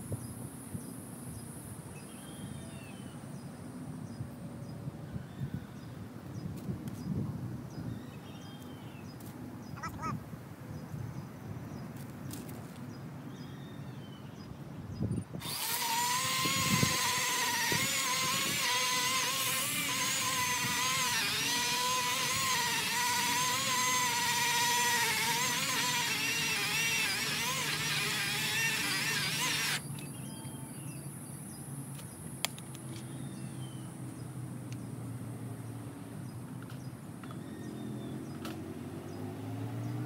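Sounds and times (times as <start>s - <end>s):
electric chainsaw cutting log: 15.4s - 29.9s.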